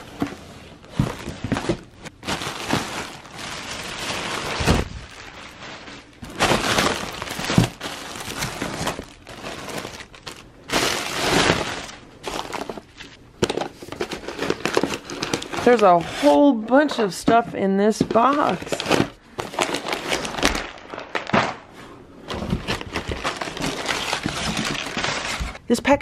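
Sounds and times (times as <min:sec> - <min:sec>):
plastic packaging crinkling: 0:00.8 - 0:16.4, 0:18.0 - 0:21.7, 0:22.3 - 0:25.6
cardboard flaps scraping: 0:04.2 - 0:07.8.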